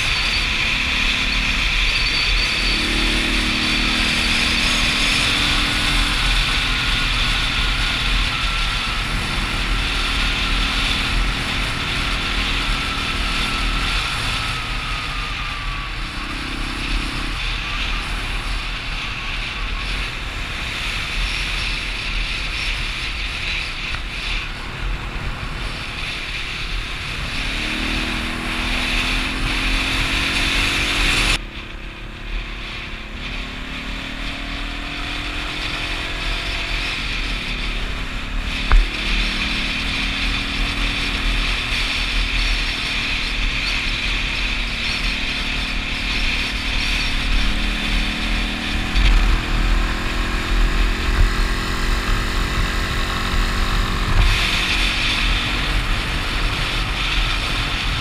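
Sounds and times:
motorcycle engine accelerating: 0.0 - 58.0
wind rush: 0.0 - 58.0.

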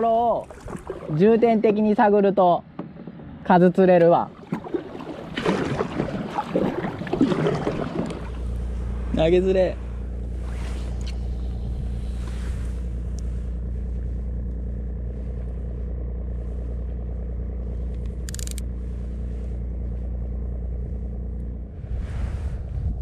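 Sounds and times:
low motor drone: 0.0 - 23.0
rough wind-like noise: 8.4 - 14.1, 21.6 - 23.0
short crackle: 10.2 - 20.2.

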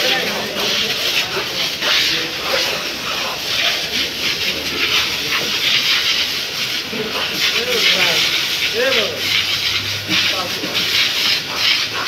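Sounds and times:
water hose spraying hiss: 0.0 - 12.0
water spattering on wet floor: 0.0 - 12.0.

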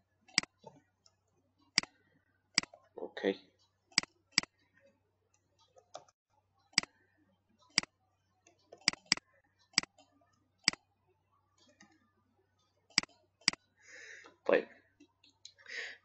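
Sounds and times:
computer mouse clicks: 0.3 - 1.9, 8.5 - 10.8, 12.9 - 13.6.

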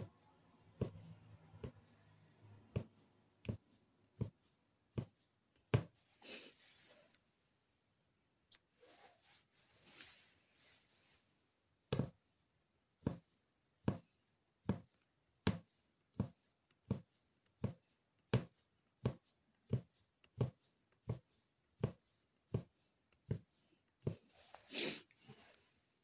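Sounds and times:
punch needle thumping through fabric: 2.7 - 6.0, 11.9 - 12.2, 13.0 - 24.2.

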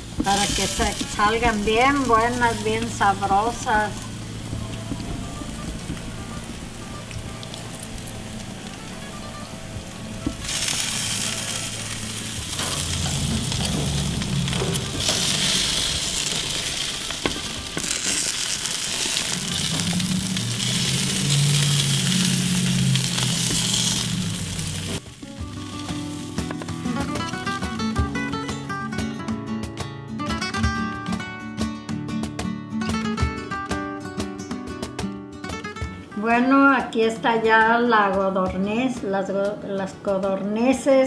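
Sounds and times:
meat sizzling on a grill: 0.0 - 28.8.

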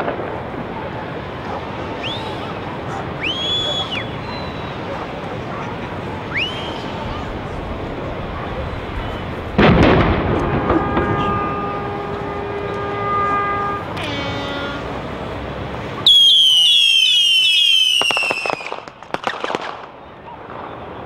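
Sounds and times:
sharp cracks: 0.0 - 3.6, 9.5 - 13.0, 16.1 - 21.0
high falling whistles: 2.0 - 2.5, 3.2 - 4.8, 6.3 - 7.2, 16.1 - 18.8
cannon bang: 7.6 - 14.0
boat horn chord: 10.1 - 15.5.

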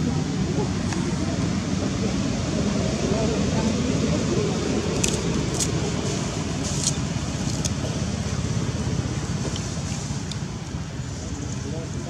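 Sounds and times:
low rumbling background noise: 0.0 - 12.0.

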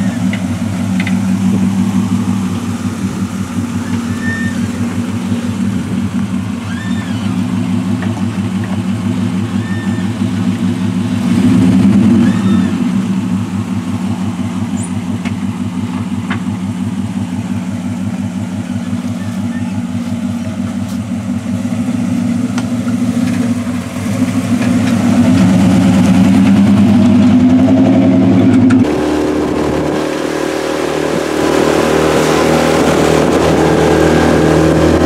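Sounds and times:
truck engine idling: 0.0 - 29.5
bird whistles: 3.8 - 4.7, 6.7 - 7.3, 9.6 - 10.1, 12.2 - 12.8.

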